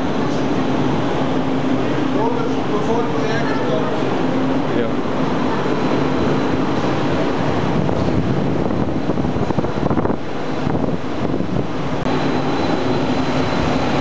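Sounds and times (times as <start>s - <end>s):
tram wheels on rails: 0.0s - 14.0s.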